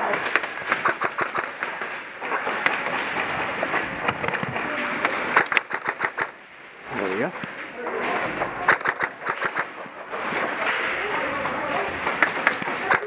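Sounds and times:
airsoft gun shots: 0.0 - 3.8, 5.0 - 6.4, 8.6 - 9.8
noisy indoor arena din: 0.0 - 13.0.

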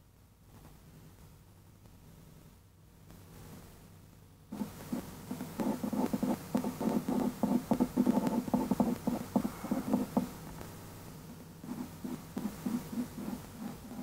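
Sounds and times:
pen strokes on paper: 4.5 - 10.3, 11.6 - 14.0.

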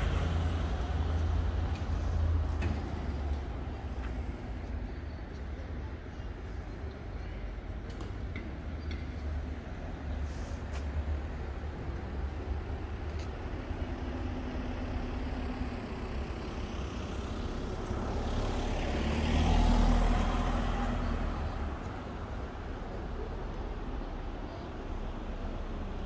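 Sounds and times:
low rumble of traffic: 0.0 - 26.0
vehicle driving past: 14.8 - 21.9.

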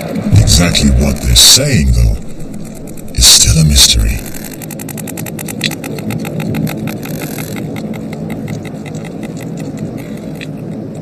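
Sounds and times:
low underwater rumble: 0.0 - 4.6
whales clicking underwater: 2.0 - 11.0.

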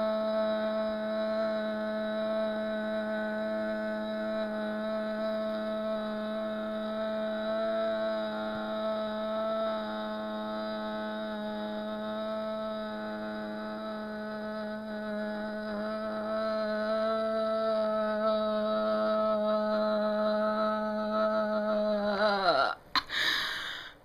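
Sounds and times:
woman singing long note: 0.0 - 22.8.

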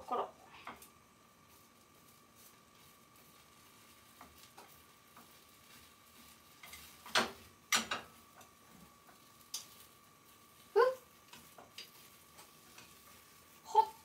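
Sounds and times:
chopsticks tapping a pan: 4.1 - 9.8, 11.2 - 13.3.

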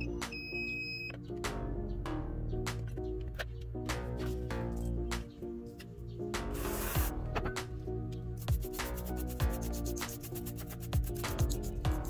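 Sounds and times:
high electronic beep: 0.0 - 1.2
background music with percussion: 6.2 - 12.0.

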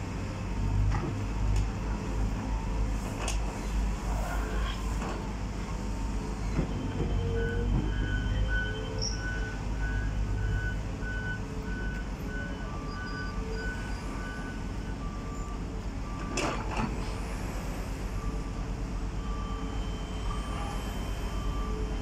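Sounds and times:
heavy diesel machinery running: 0.0 - 22.0
low slow warning beeps: 6.8 - 16.5, 18.0 - 22.0.

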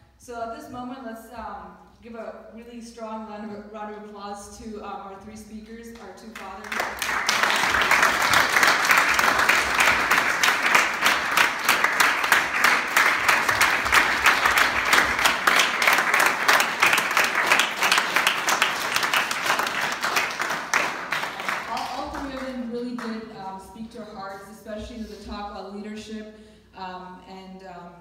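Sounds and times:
audience applauding: 6.6 - 22.5.

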